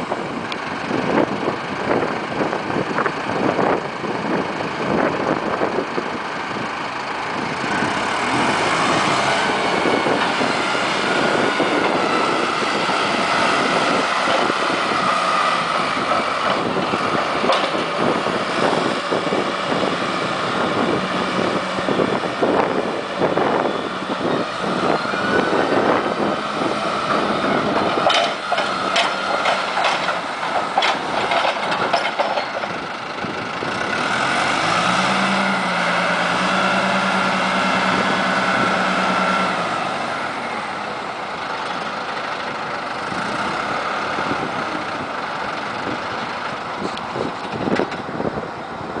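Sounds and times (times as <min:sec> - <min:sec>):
forklift diesel engine running: 0:00.0 - 0:49.0
knocks and rattles: 0:27.7 - 0:32.8.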